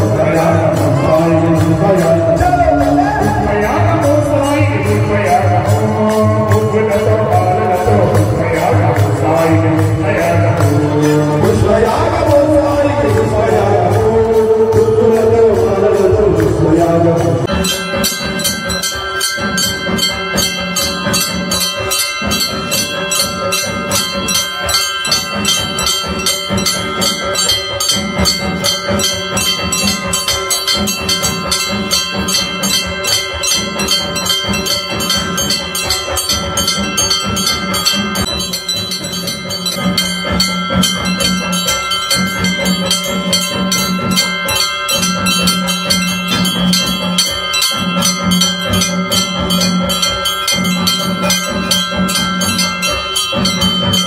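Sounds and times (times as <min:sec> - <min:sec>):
person singing: 0:00.0 - 0:18.2
bells rung rapidly: 0:00.0 - 0:54.0.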